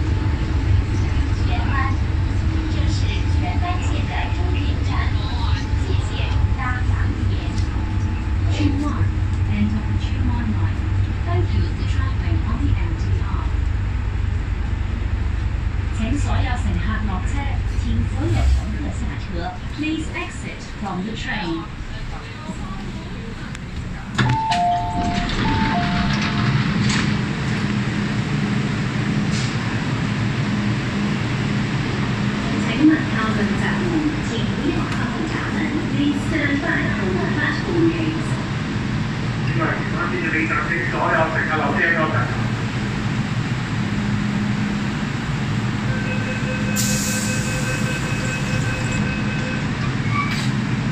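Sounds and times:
train humming: 0:00.0 - 0:50.9
two-tone train door chime: 0:24.2 - 0:26.9, 0:45.9 - 0:50.6.

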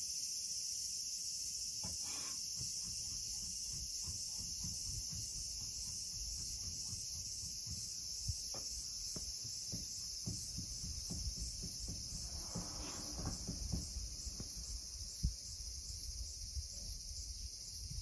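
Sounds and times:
insects chirping: 0:00.0 - 0:18.0
faint low knocks: 0:04.2 - 0:15.5
small thump: 0:07.7 - 0:15.4.

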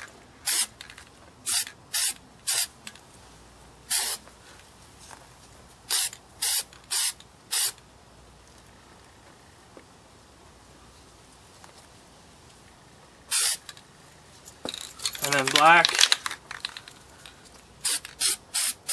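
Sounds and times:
spray-paint can hissing: 0:00.4 - 0:00.7, 0:01.4 - 0:02.8, 0:03.9 - 0:04.2, 0:05.9 - 0:07.8, 0:13.3 - 0:13.7, 0:17.8 - 0:18.9.

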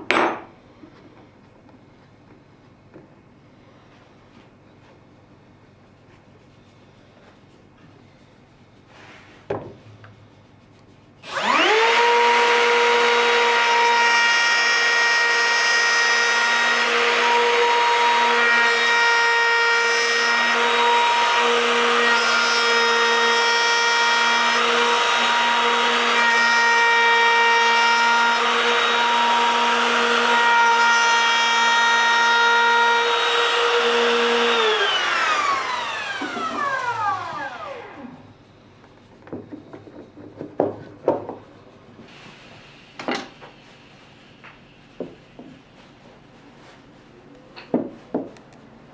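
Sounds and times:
knock: 0:09.5 - 0:09.8, 0:47.7 - 0:48.4
router whine cutting wood: 0:11.2 - 0:38.2.

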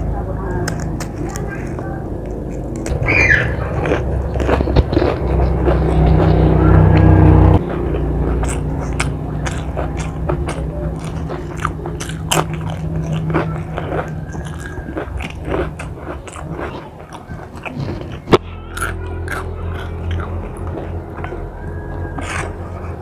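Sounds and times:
low hum: 0:00.0 - 0:23.0
crunching potato chips: 0:00.6 - 0:23.0.

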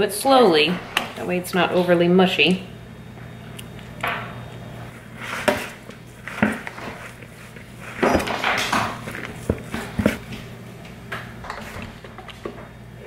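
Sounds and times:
low steady hum: 0:00.0 - 0:13.0
spoon scraping and squishing: 0:04.9 - 0:10.2.

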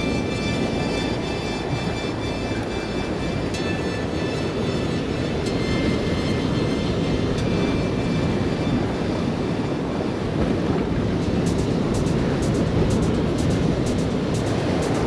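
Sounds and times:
surf washing over rocks: 0:03.1 - 0:15.0.

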